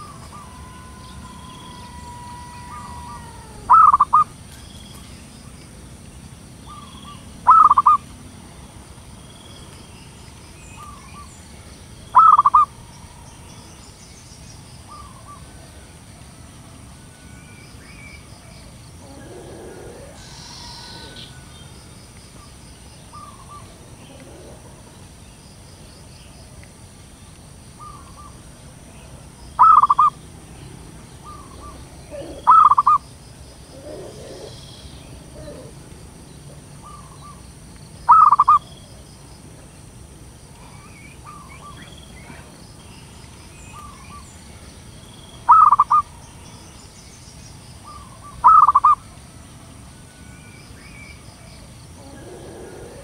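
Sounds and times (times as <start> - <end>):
dove cooing: 0.0 - 4.3, 6.7 - 8.0, 12.2 - 13.2, 19.0 - 21.5, 23.1 - 25.0, 29.6 - 30.2, 31.2 - 33.0, 33.6 - 35.9, 38.1 - 38.6, 45.5 - 46.0, 47.9 - 49.0, 52.0 - 53.0.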